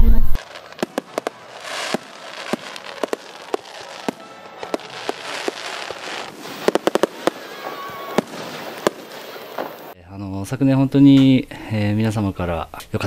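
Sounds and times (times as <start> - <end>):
fireworks bangs: 0.0 - 10.0
fireworks crackle and hiss: 0.3 - 10.0.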